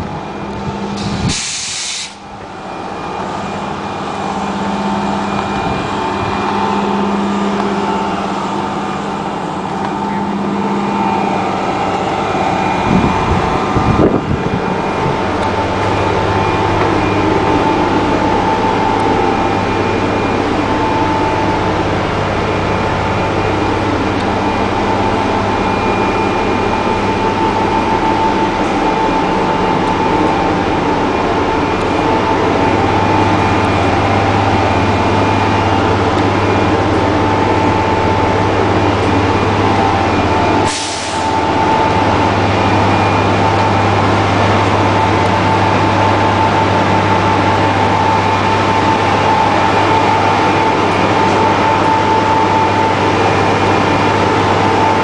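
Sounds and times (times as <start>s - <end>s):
diesel bus engine idling: 0.0s - 55.0s
steady whine: 0.0s - 55.0s
air hiss burst: 1.0s - 2.2s.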